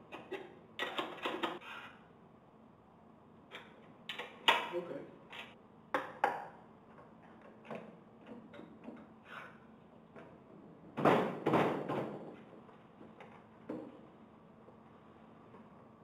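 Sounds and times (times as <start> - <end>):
knocks and rattles of tools: 0.0 - 1.6.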